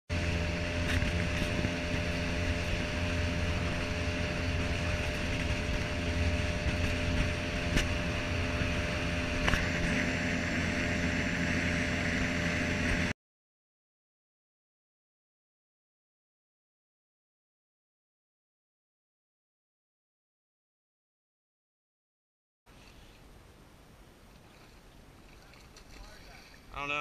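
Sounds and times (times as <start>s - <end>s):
boat motor running: 0.1s - 13.1s, 24.3s - 27.0s
wind and water rushing: 0.1s - 13.1s, 23.2s - 27.0s.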